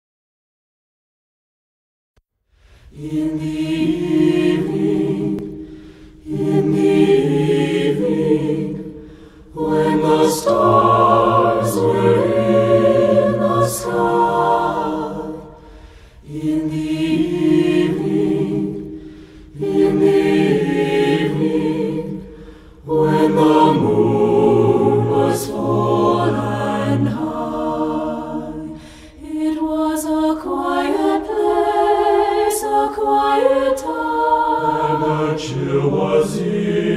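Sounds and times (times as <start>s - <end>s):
singers breathing: 2.5s - 3.0s, 5.5s - 6.4s, 8.8s - 9.7s, 15.3s - 16.3s, 18.8s - 19.6s, 22.1s - 22.9s, 28.6s - 29.3s
choir singing a cappella: 2.8s - 36.9s.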